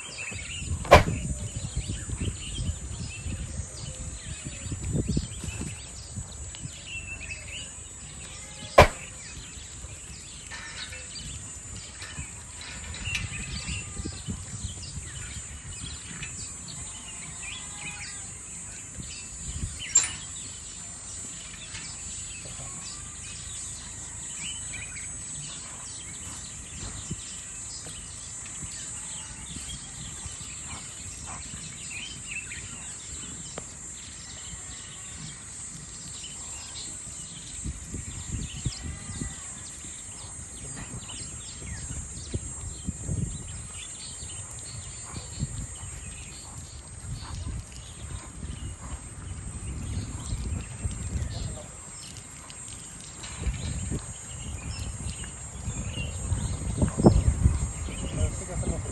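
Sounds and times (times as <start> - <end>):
small birds chirping: 0.0 - 58.9
steady high-pitched hiss: 0.0 - 58.9
sharp knocks: 0.9 - 1.3, 8.8 - 9.1.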